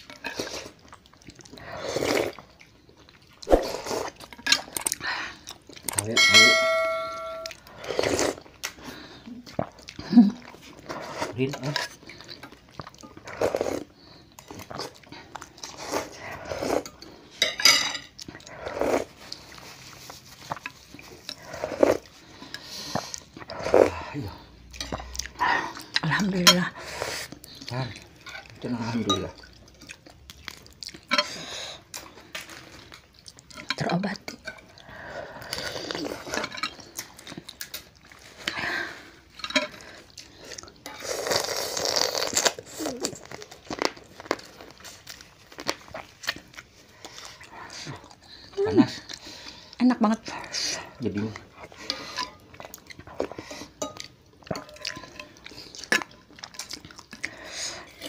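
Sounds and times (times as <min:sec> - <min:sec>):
slurping noodle soup: 0:00.0 - 0:02.6, 0:03.3 - 0:05.7, 0:07.6 - 0:17.4, 0:18.2 - 0:26.0, 0:26.6 - 0:28.8, 0:34.7 - 0:53.8
cutlery clinking on ceramic bowls: 0:05.9 - 0:07.6, 0:16.9 - 0:18.2, 0:31.0 - 0:31.5, 0:39.3 - 0:39.8, 0:53.8 - 0:56.7
utensils clicking on ceramic bowls: 0:05.9 - 0:07.6.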